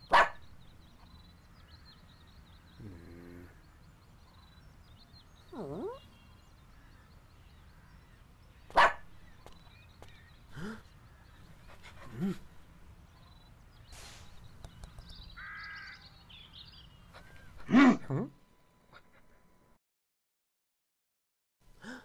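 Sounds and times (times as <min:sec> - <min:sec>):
cartoon dog barking and yipping: 0:00.1 - 0:00.4, 0:08.7 - 0:09.0, 0:17.6 - 0:18.2.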